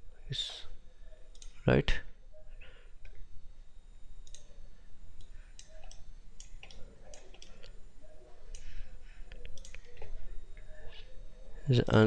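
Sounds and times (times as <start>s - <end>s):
faint low hum: 0.0s - 12.0s
computer mouse clicking: 1.3s - 1.6s, 4.2s - 4.5s, 5.2s - 7.7s, 9.3s - 10.1s.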